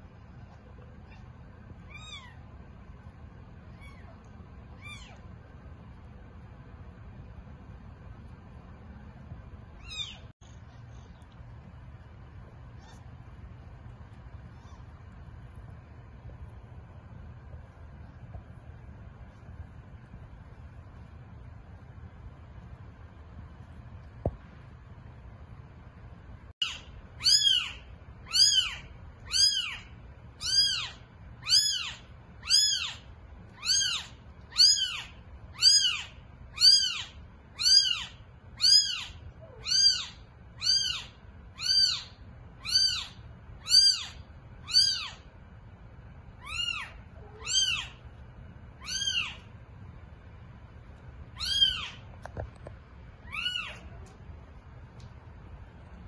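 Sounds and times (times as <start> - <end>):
kitten mewing: 46.4 - 47.9, 51.4 - 52.0, 53.2 - 54.2.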